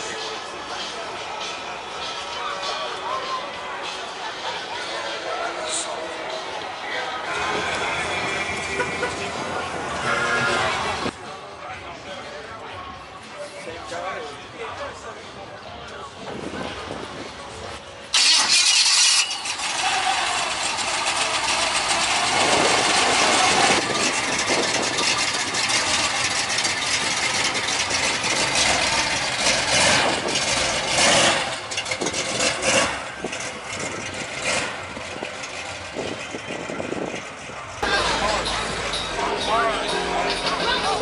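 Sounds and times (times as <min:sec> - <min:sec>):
car engine starting and revving: 0:18.1 - 0:41.0.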